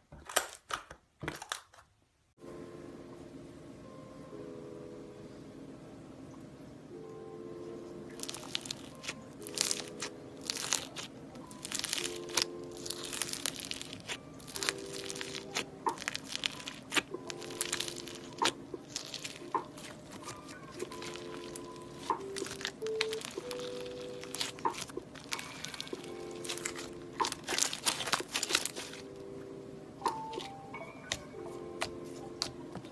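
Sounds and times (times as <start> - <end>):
soft background music: 2.4 - 32.9
crunchy slime being squished: 8.2 - 29.2, 30.1 - 32.9.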